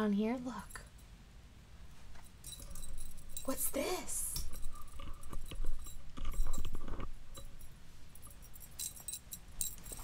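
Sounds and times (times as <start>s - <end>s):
rustling handling noise: 1.8s - 10.0s
metal clinking and jingling: 2.1s - 10.0s.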